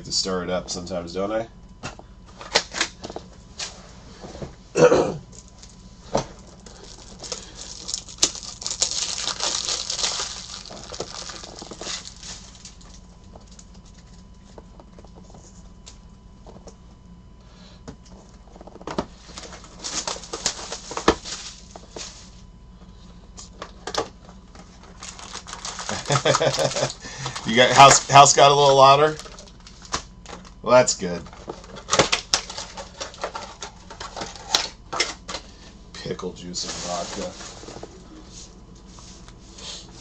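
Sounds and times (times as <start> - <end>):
packaging rustling: 6.4 - 15.4, 18.5 - 22.2, 24.6 - 30.5.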